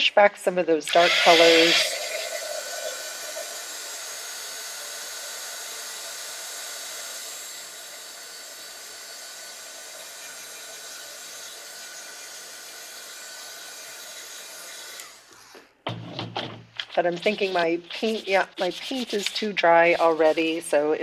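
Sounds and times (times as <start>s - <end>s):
electric blower hissing: 0.9s - 15.6s.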